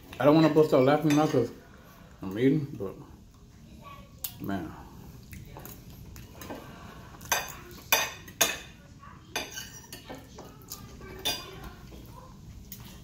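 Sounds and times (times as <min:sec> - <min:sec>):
cutlery clinking on a plate: 0:00.3 - 0:01.5, 0:05.6 - 0:10.5, 0:11.1 - 0:11.7.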